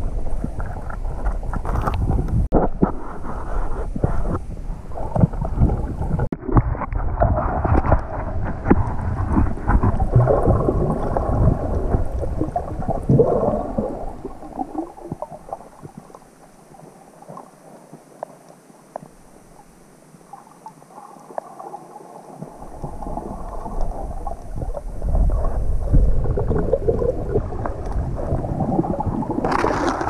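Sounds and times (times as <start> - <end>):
muffled underwater rumble: 0.0 - 30.0
faint hiss: 10.9 - 29.4.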